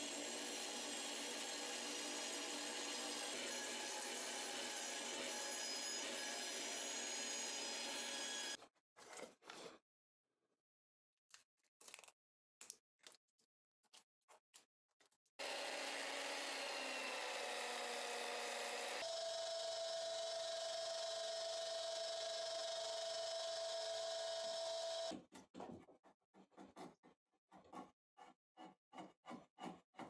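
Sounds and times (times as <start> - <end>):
motor with high whine: 4.7 - 8.6, 15.4 - 25.1
belt sander running: 15.4 - 25.1.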